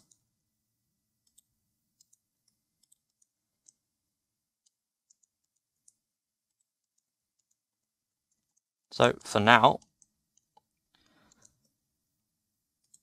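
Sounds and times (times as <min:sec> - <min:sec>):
mouse and keyboard clicking: 0:01.2 - 0:03.8, 0:04.6 - 0:07.6, 0:12.8 - 0:13.0.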